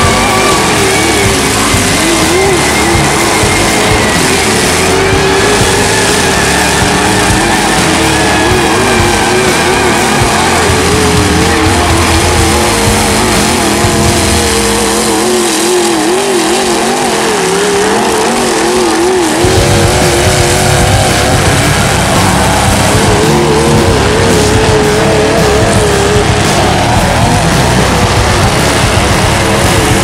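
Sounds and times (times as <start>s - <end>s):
truck engines revving: 0.0s - 30.0s
deep rumble: 19.4s - 30.0s.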